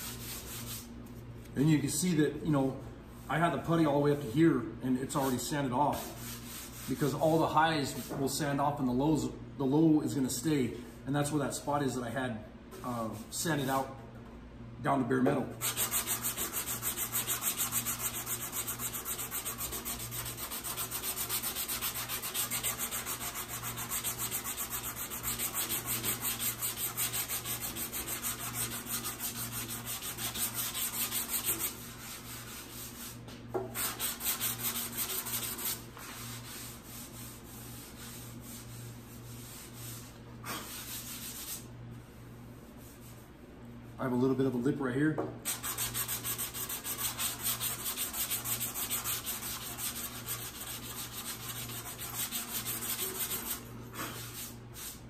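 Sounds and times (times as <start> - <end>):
sandpaper rubbing on metal: 15.6 - 33.2, 33.8 - 41.7, 45.5 - 55.0.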